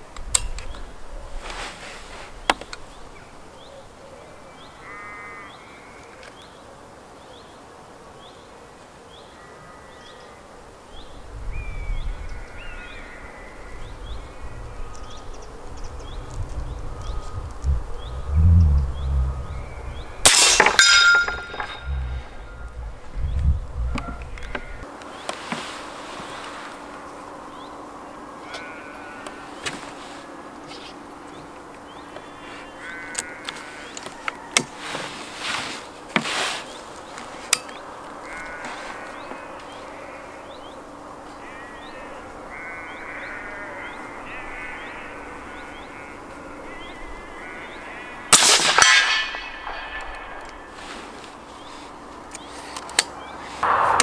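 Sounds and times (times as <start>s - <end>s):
air rifle shot: 48.4s - 50.4s, 53.6s - 54.0s.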